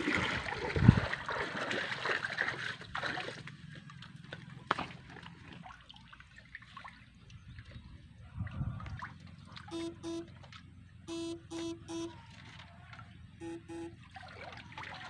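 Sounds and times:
electric fishing shocker buzzing: 9.7 - 10.3, 11.1 - 12.2, 13.4 - 14.0
water trickling: 13.4 - 15.0.

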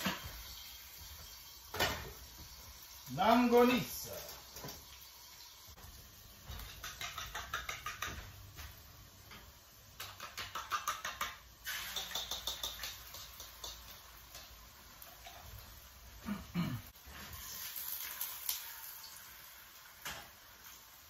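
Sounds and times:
fork beating eggs in bowl: 6.6 - 8.1, 10.0 - 14.0.

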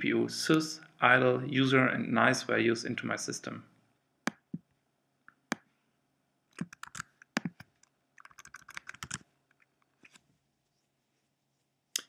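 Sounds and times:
typing on computer keyboard: 6.6 - 9.2.

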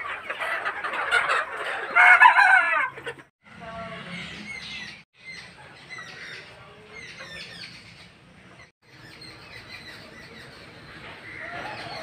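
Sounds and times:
small birds chirping: 3.6 - 12.0.

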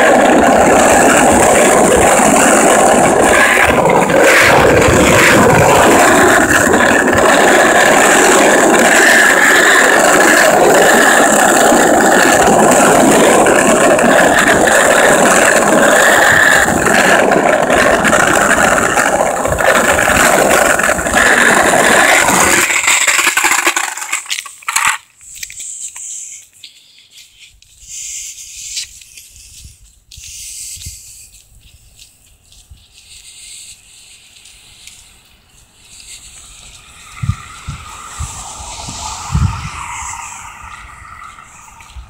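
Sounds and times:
wheels rattling over rough asphalt: 0.0 - 42.0.

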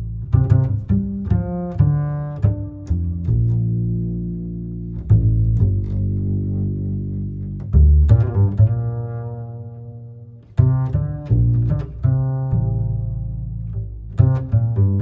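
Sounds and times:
deep plucked notes: 0.0 - 15.0.

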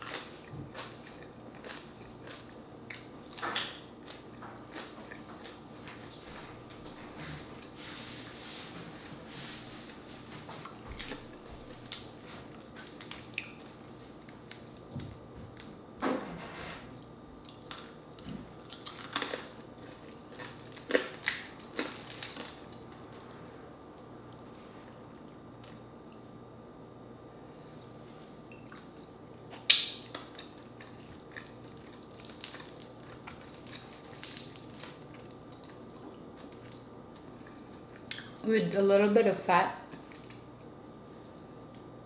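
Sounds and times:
chewing: 0.0 - 3.4, 4.0 - 6.4, 10.5 - 14.9, 17.0 - 26.2, 30.1 - 38.4, 39.9 - 42.0.

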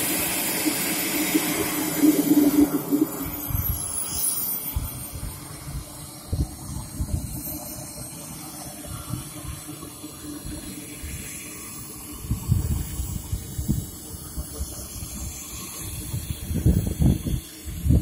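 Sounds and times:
model jet turbine hissing: 0.0 - 18.0
wind rumbling on microphone: 1.4 - 7.6, 12.1 - 18.0.

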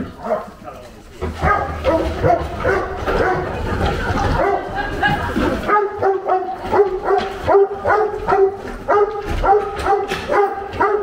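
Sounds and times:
dog barking: 0.2 - 0.6, 1.4 - 3.6, 4.4 - 4.7, 5.7 - 11.0.

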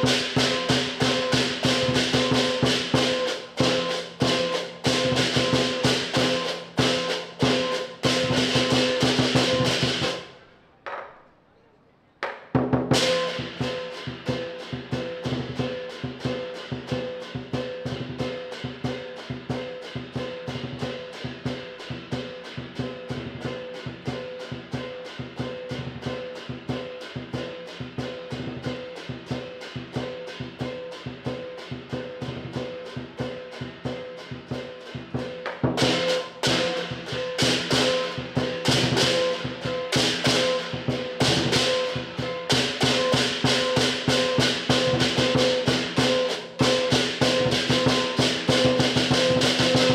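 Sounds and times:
large drum beating fast: 0.0 - 10.3, 12.6 - 49.9
cymbals crashing: 0.0 - 10.4, 12.9 - 49.9.

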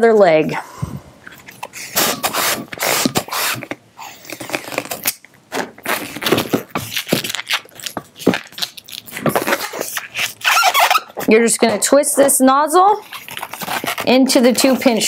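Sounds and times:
balloon squeaking and rubbing: 1.6 - 15.0
balloon pump hissing: 1.7 - 4.9, 9.4 - 11.3.

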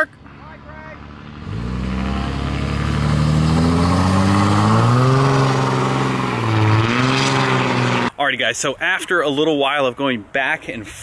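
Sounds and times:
diesel truck accelerating: 0.0 - 8.2.

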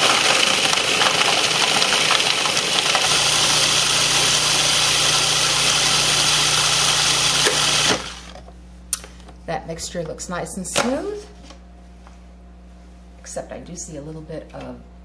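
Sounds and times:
food processor grinding: 0.0 - 8.4.

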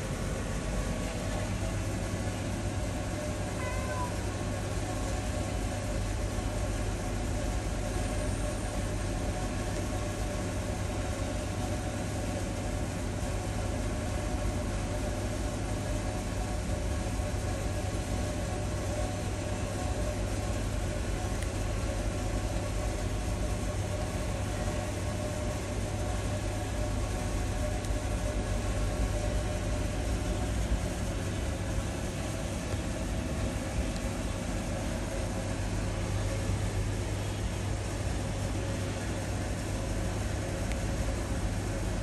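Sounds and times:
low mechanical hum with tones: 0.0 - 42.0.

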